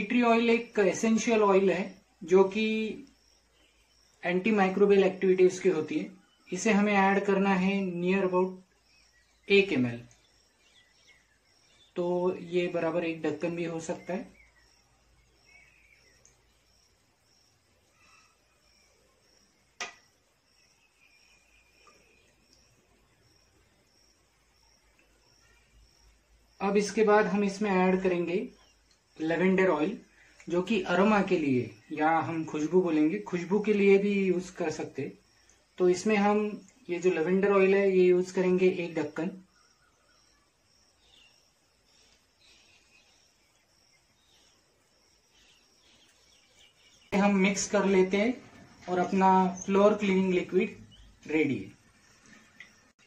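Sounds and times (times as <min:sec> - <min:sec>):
faint high chirping: 0:00.0 - 0:53.0
faint high chirp: 0:13.8 - 0:22.8, 0:24.8 - 0:26.2.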